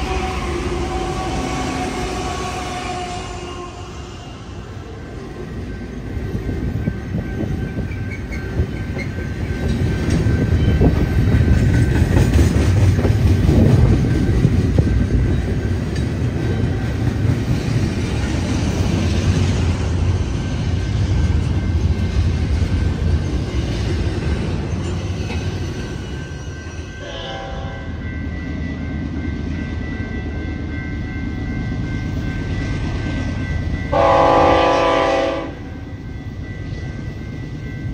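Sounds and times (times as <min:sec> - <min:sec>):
train horn note: 0:00.0 - 0:04.2, 0:27.0 - 0:28.0, 0:33.9 - 0:35.7
diesel train engine rumble: 0:00.0 - 0:37.9
wheel and rail noise: 0:00.0 - 0:37.9.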